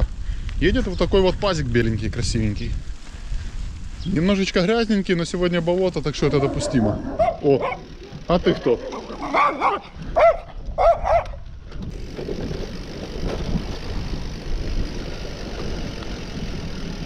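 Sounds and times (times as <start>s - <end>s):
wind rush: 0.0s - 5.0s
bicycle tyres on dirt track: 0.0s - 17.0s
small dog yapping: 6.4s - 7.9s, 9.1s - 11.4s.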